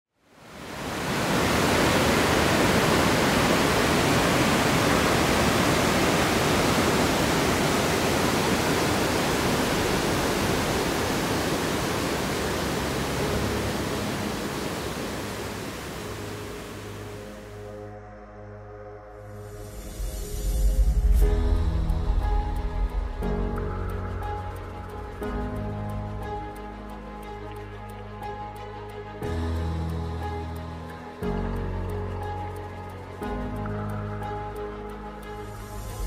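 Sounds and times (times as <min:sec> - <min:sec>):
turbulent river water rushing: 0:00.4 - 0:17.5
background music: 0:09.3 - 0:36.0.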